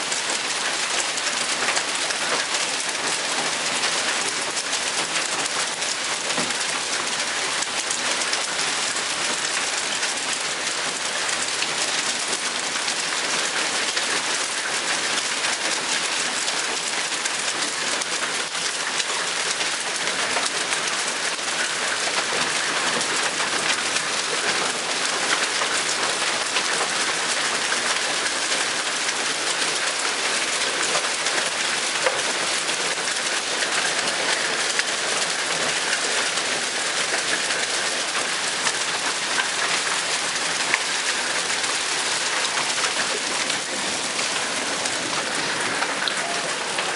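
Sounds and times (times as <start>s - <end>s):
hail ticking: 0.0s - 46.9s
heavy rain hissing: 24.4s - 46.9s.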